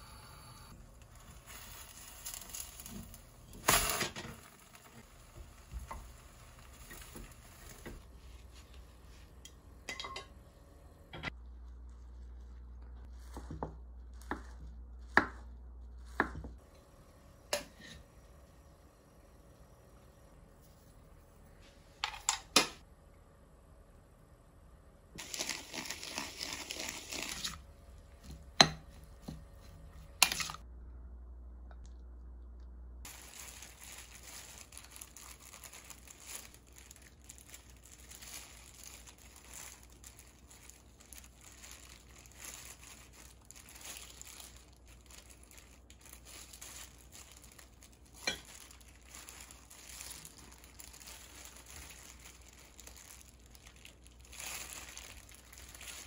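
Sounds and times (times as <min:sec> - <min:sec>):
plastic gloves crinkling: 0:00.7 - 0:09.9, 0:11.3 - 0:16.6, 0:25.2 - 0:30.6, 0:33.0 - 0:56.0.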